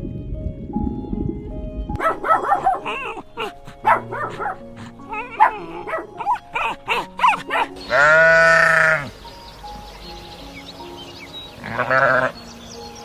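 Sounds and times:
soft background music: 0:00.0 - 0:13.0
puppy yipping and whimpering: 0:02.0 - 0:08.4
sheep bleating: 0:07.8 - 0:09.1, 0:11.6 - 0:12.4.

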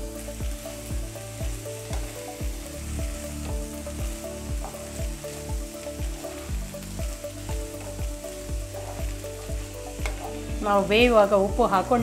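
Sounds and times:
background music with steady beat: 0:00.0 - 0:12.0
food sizzling in a frying pan: 0:00.0 - 0:12.0
wooden spatula stirring: 0:07.5 - 0:10.5.

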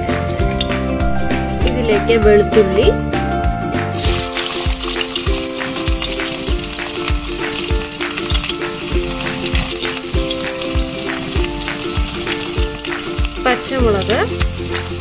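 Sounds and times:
garlic sizzling in hot oil: 0:03.9 - 0:15.0.

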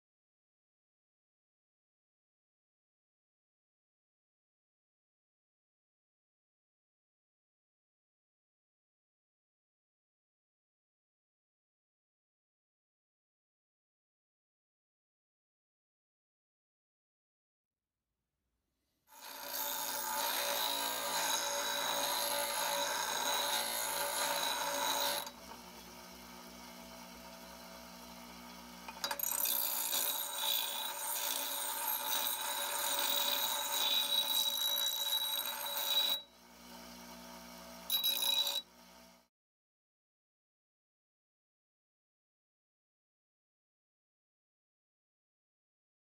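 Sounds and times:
metal grinding on wheel: 0:19.1 - 0:25.6, 0:28.9 - 0:36.3, 0:37.9 - 0:38.6
bench grinder whining: 0:19.1 - 0:39.2.

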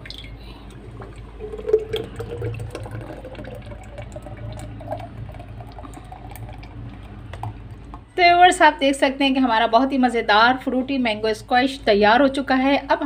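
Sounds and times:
thick syrup pouring into jug: 0:00.0 - 0:08.1.

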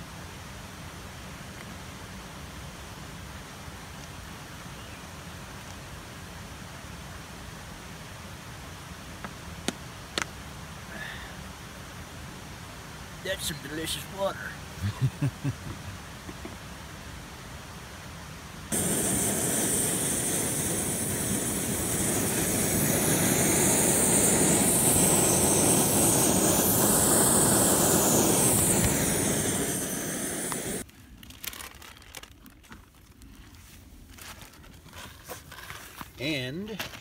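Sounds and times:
camping stove hissing roar: 0:10.9 - 0:11.4, 0:18.7 - 0:30.9.

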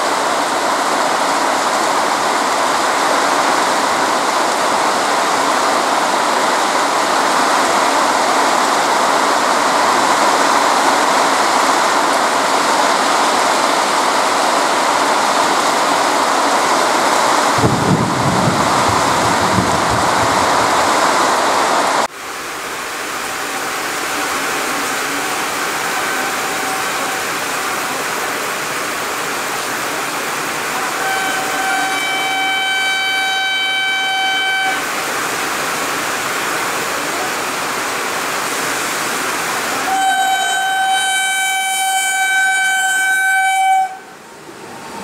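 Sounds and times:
rain hiss: 0:00.0 - 0:42.3, 0:43.8 - 0:45.0
heavy rain on a metal roof: 0:00.0 - 0:45.0
train horn blast: 0:23.4 - 0:28.4, 0:30.2 - 0:35.2, 0:39.8 - 0:44.3.

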